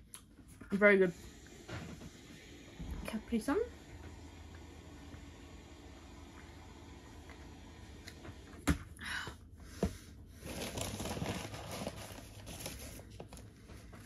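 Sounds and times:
food packaging crinkling: 0:10.4 - 0:13.5.

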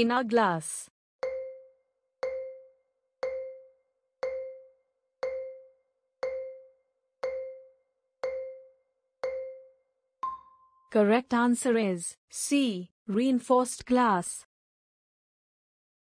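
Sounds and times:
short pitched timer pings: 0:01.2 - 0:10.9.

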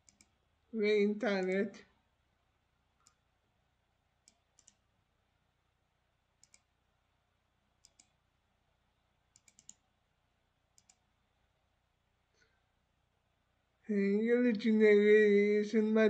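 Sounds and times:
mouse and keyboard clicks: 0:00.0 - 0:00.3, 0:04.2 - 0:04.8, 0:06.4 - 0:06.7, 0:07.8 - 0:08.2, 0:09.3 - 0:09.8, 0:10.8 - 0:11.0.

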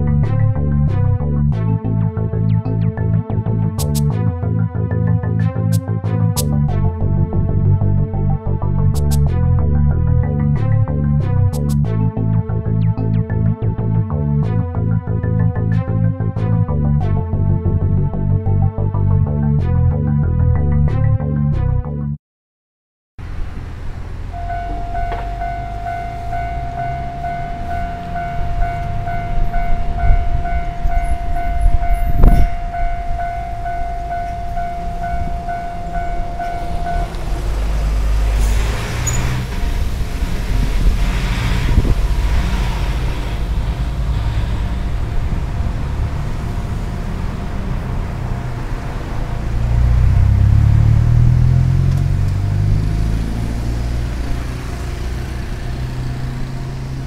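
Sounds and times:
low traffic rumble: 0:00.0 - 0:21.6, 0:23.2 - 0:57.0
vehicle accelerating away: 0:23.3 - 0:57.0
level-crossing warning bell: 0:24.3 - 0:41.2.

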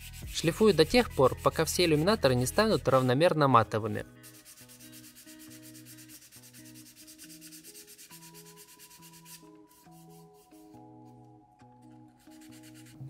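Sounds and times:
sandpaper scratching plastic: 0:00.0 - 0:03.2, 0:04.2 - 0:10.4
faint background music: 0:00.0 - 0:13.0.

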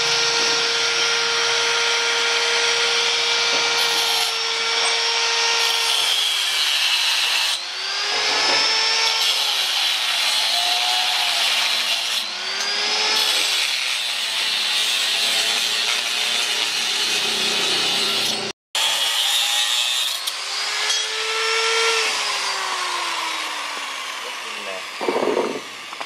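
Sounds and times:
angle grinder cutting steel: 0:00.0 - 0:26.0.

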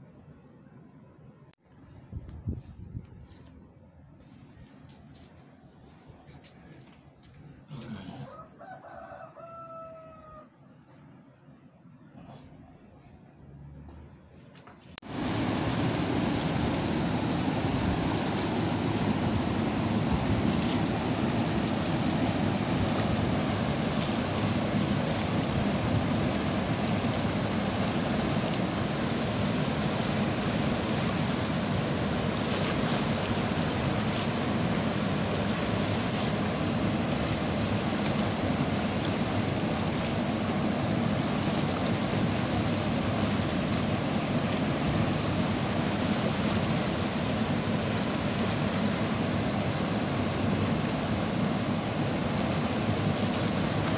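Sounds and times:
river water rushing over rocks: 0:15.0 - 0:53.9.

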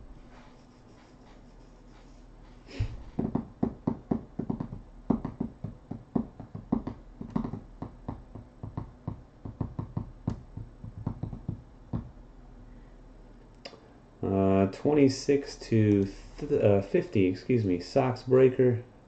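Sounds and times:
rapid sharp knocks: 0:03.0 - 0:12.2.

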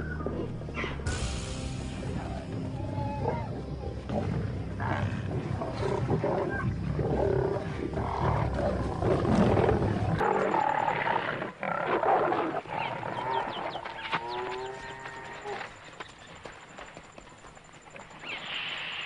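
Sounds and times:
lions growling: 0:02.1 - 0:15.6.

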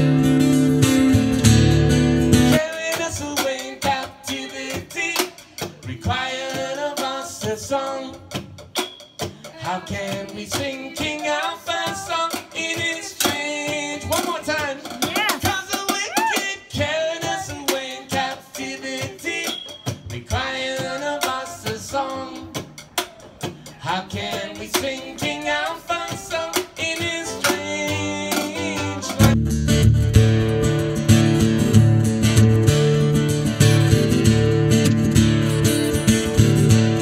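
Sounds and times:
ukulele strumming: 0:00.0 - 0:05.4, 0:23.8 - 0:37.0
man singing: 0:02.6 - 0:08.4, 0:09.4 - 0:22.6, 0:23.6 - 0:29.4.

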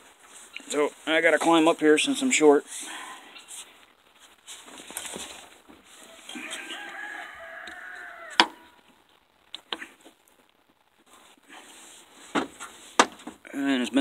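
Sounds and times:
rooster crowing: 0:06.0 - 0:08.8.

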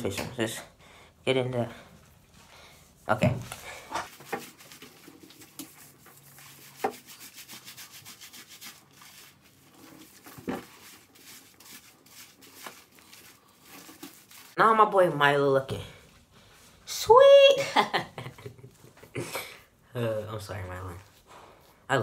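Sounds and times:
hands rubbing wet dog coat: 0:02.1 - 0:14.6, 0:20.1 - 0:21.8.

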